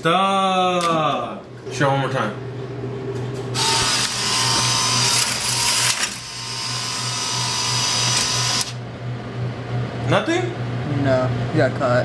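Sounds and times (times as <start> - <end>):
vending machine motor whining: 3.0 - 9.1.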